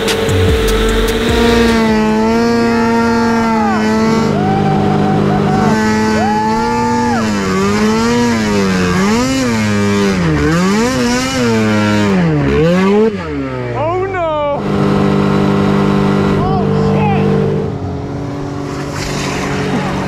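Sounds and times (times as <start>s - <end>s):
snowmobile engine revving: 0.0s - 20.0s
rider whooping: 1.4s - 8.6s.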